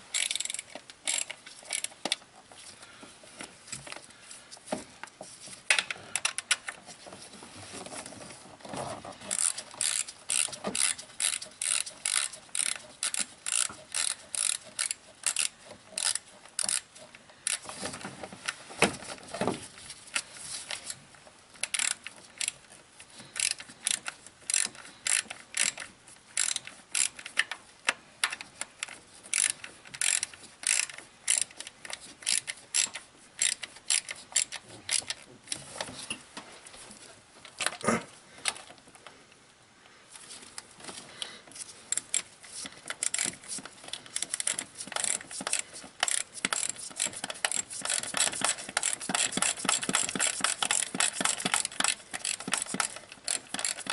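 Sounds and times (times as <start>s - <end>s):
hand ratchet clicking: 0.1s - 2.2s, 9.3s - 17.7s, 21.6s - 35.2s, 41.6s - 53.9s.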